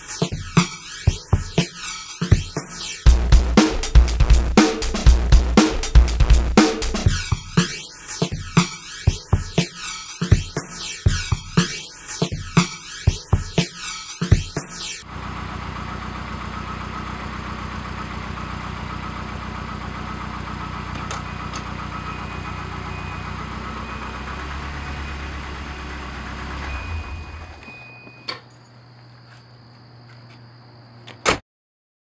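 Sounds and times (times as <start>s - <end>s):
car engine idling: 15.0s - 27.7s.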